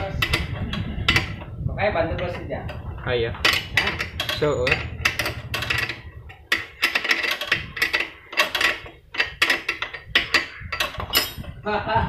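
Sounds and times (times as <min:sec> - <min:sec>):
metal tools clinking: 0:03.4 - 0:11.6.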